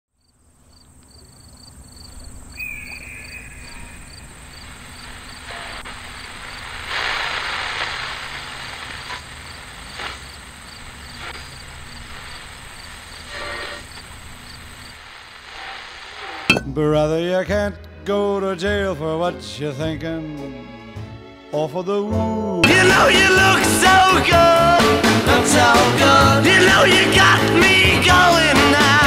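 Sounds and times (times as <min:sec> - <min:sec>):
crickets chirping: 0:00.1 - 0:15.8
bursts of hiss: 0:03.2 - 0:16.5.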